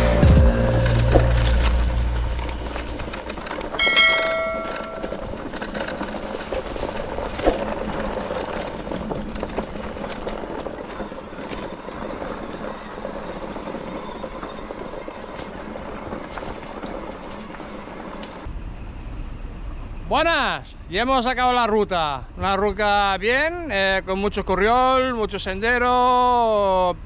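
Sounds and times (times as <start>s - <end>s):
bike rolling on a trail: 0.0s - 19.2s
bike rattles and clicks: 0.2s - 18.5s
bell-like ring: 3.8s - 5.4s.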